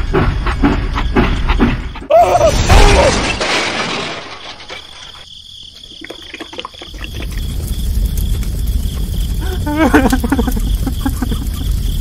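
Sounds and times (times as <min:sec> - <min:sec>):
crash sound effect: 0:02.4 - 0:04.9.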